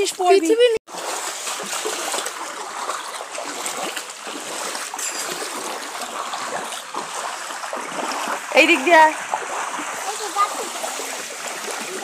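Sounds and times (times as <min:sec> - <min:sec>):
feet splashing through water: 0:00.9 - 0:12.0
hiss of moving water: 0:09.5 - 0:12.0.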